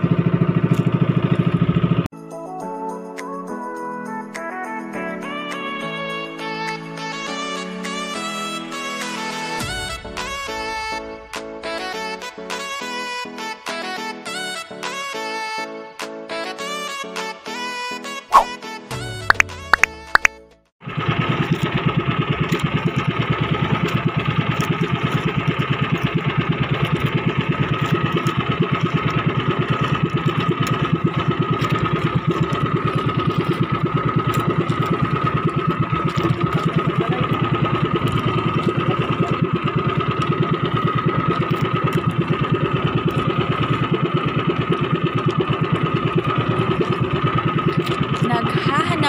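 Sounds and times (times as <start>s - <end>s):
engine whine: 0.0s - 2.1s, 18.3s - 49.0s
small boat engine putter: 0.0s - 2.1s, 19.1s - 49.0s.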